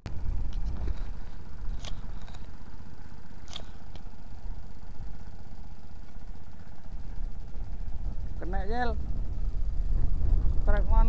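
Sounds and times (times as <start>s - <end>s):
wind buffeting the microphone: 7.5s - 11.0s.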